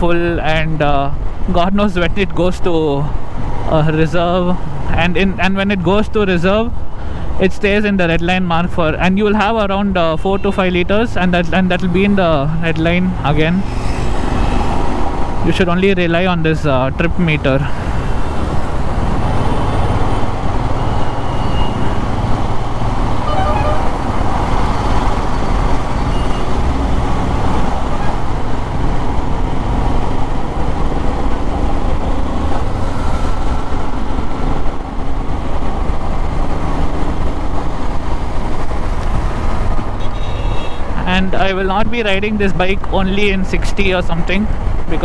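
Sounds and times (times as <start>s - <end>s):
surrounding traffic: 0.0s - 45.0s
wind rush: 13.1s - 15.5s
faint horn toots: 23.2s - 24.0s, 40.0s - 40.8s.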